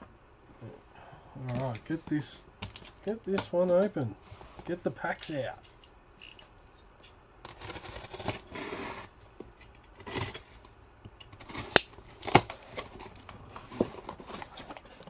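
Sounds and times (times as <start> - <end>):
cardboard flaps scraping and rustling: 7.5 - 9.2, 11.3 - 15.0.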